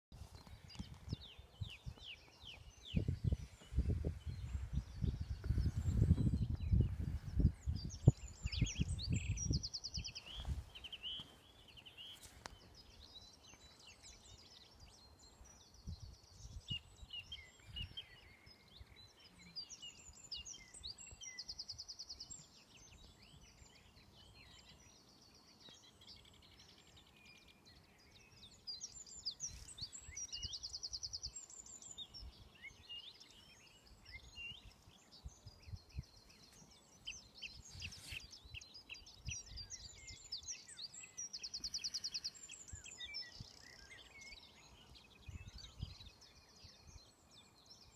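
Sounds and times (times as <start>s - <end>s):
songbirds singing: 0.0s - 47.9s
wind buffeting microphone: 0.2s - 11.0s, 45.2s - 46.2s.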